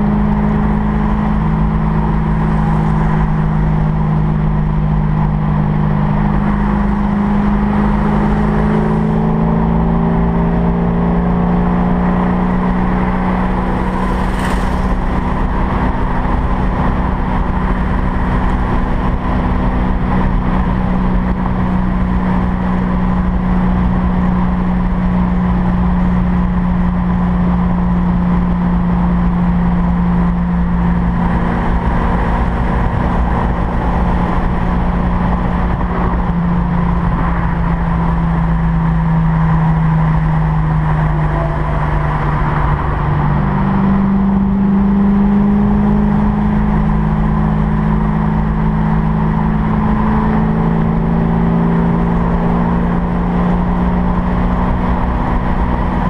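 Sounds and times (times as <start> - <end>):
car engine cruising: 0.0 - 56.0
road and wind noise: 0.0 - 56.0
brief whoosh: 13.5 - 15.8.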